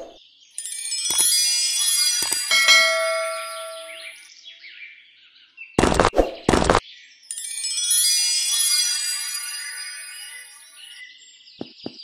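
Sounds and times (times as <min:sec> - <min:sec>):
sparkling chime: 0:00.5 - 0:04.3, 0:07.2 - 0:11.4.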